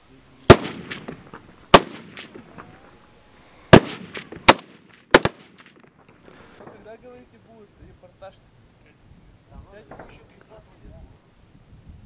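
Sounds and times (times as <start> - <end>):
rifle shots echoing: 0.5 - 2.6, 3.7 - 6.0.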